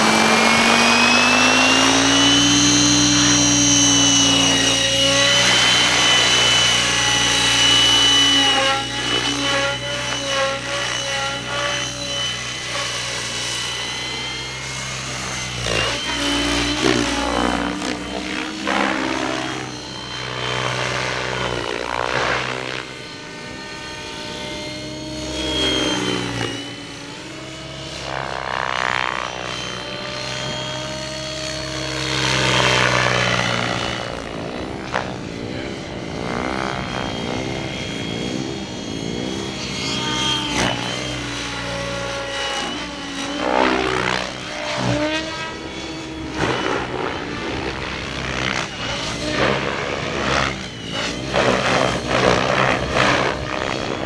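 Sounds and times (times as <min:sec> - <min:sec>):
rc helicopter rotor whine: 0:00.0 - 0:54.0.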